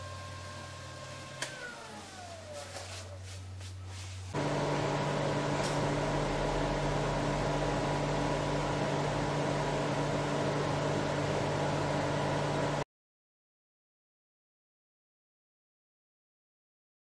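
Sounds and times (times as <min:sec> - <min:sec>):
lathe motor humming: 0:00.0 - 0:03.2, 0:04.3 - 0:12.8.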